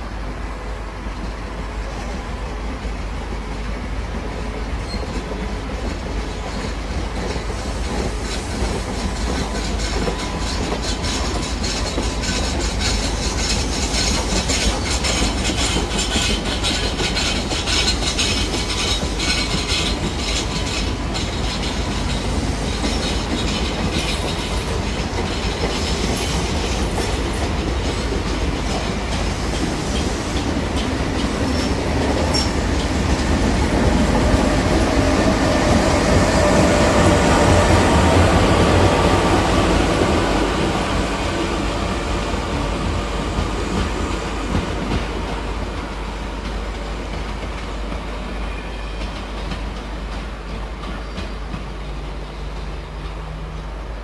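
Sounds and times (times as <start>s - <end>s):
train coaches rolling past: 0.0s - 54.0s.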